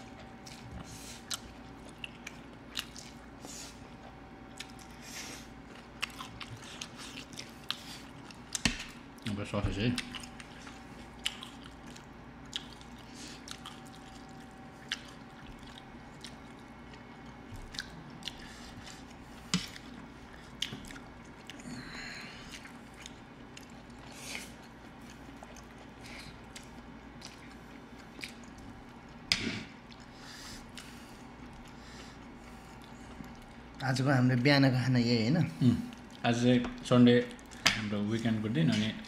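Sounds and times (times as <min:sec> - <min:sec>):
steady low hum: 0:00.0 - 0:39.0
chewing and slurping noodles: 0:10.0 - 0:21.6.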